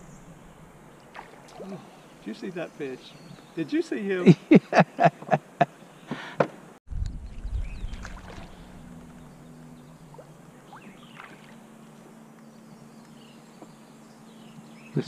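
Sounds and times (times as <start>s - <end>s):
low rumble from canoe: 6.9s - 13.8s
faint steady hum: 7.0s - 15.0s
faint high bird chirps: 7.2s - 11.6s.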